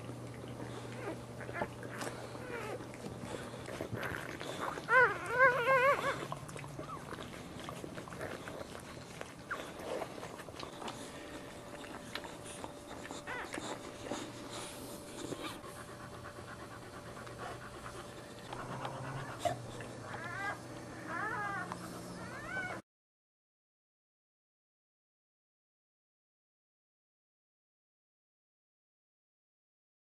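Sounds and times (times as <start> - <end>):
dog panting: 0.0 - 22.8
puppies whimpering: 0.2 - 22.8.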